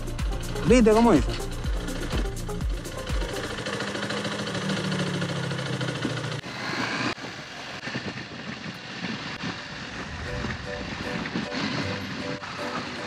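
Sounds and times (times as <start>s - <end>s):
motorcycle engine running: 0.0s - 6.6s
road noise: 0.0s - 13.0s
wind rushing over microphone: 6.4s - 13.0s.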